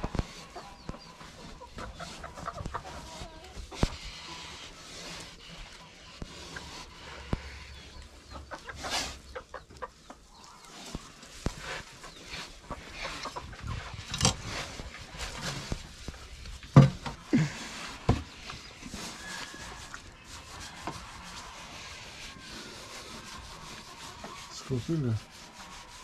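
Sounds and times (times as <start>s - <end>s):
shovel scraping sawdust: 18.9s - 26.0s.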